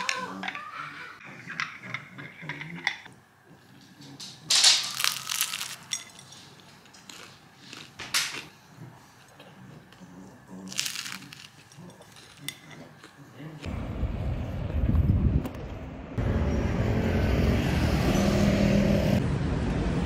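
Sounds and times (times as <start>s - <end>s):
bread crust crunching: 4.8s - 6.0s, 10.6s - 13.0s.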